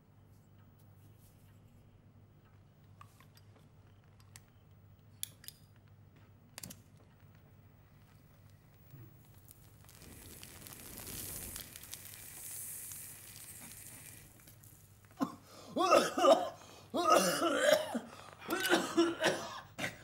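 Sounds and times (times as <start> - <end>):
hiss of flame drawn into pipe: 8.6 - 15.2.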